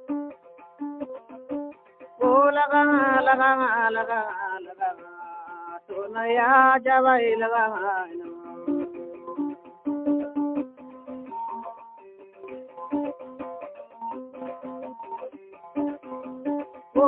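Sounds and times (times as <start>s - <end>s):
plucked string notes: 0.0s - 17.0s
person singing long wavering phrases: 2.2s - 9.6s.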